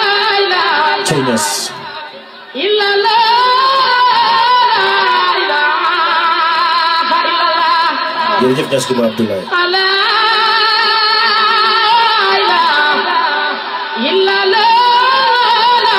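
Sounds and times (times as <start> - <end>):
song music: 1.1 - 1.9.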